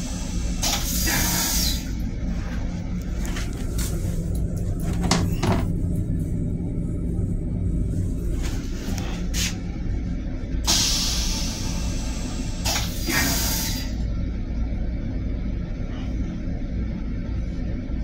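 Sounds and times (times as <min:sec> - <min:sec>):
toilet flushing hiss: 0:00.0 - 0:02.0, 0:10.7 - 0:14.0
railcar rumble: 0:00.0 - 0:18.0.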